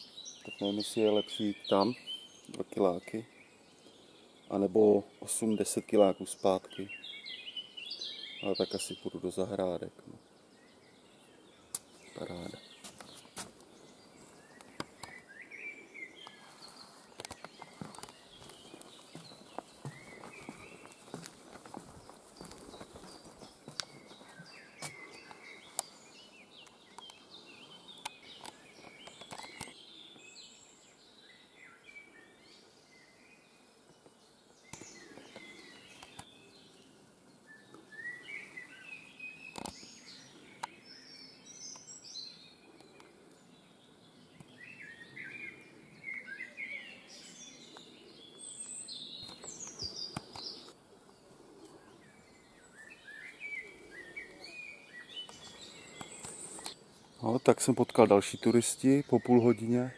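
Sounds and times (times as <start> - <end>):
songbirds chirping and singing: 0.0 - 59.9
soft footsteps walking: 11.8 - 15.2, 16.2 - 26.0.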